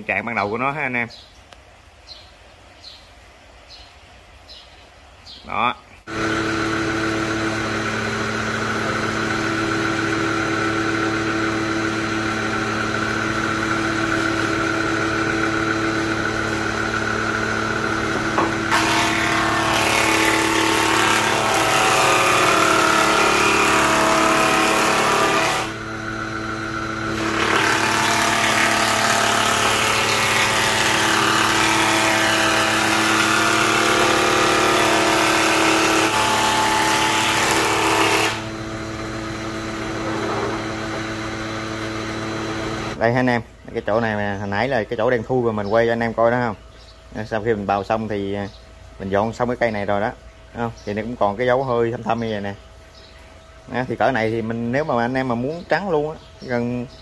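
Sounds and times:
electric wood planer motor whine: 6.1s - 43.0s
planer cutting wood: 6.1s - 43.0s.

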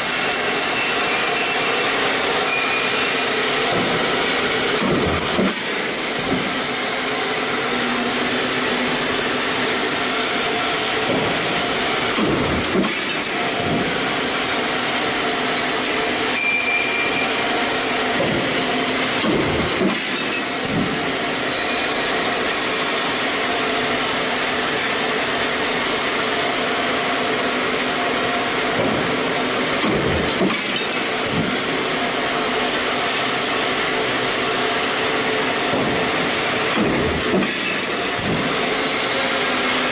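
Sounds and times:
machine hum: 0.0s - 39.9s
stamping press knocks: 3.6s - 4.2s, 4.8s - 6.5s, 11.0s - 14.0s, 18.1s - 18.6s, 28.7s - 29.2s, 29.8s - 31.6s, 35.6s - 38.6s.

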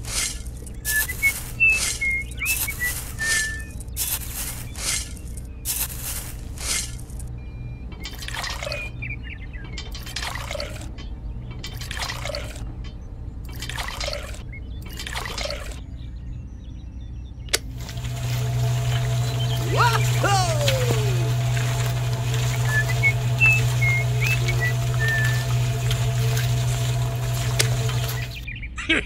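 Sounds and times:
scraping of dry mix: 17.8s - 28.4s
water splashing into dry mix: 17.8s - 28.4s.

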